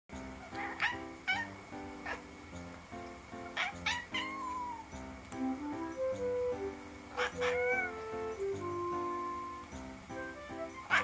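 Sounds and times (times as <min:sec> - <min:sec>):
soft background music: 0:00.1 - 0:11.0
cat meowing: 0:00.5 - 0:01.5, 0:03.6 - 0:04.9, 0:07.2 - 0:08.2.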